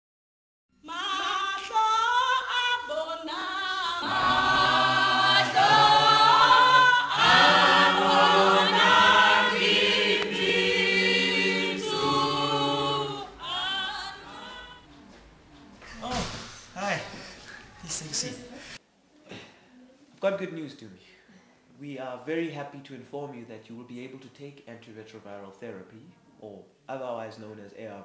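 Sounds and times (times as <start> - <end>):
choir singing a cappella: 0.9 - 14.9.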